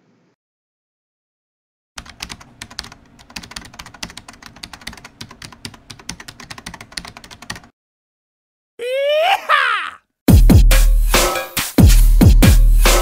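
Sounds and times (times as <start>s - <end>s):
computer keyboard typing: 2.0s - 7.7s.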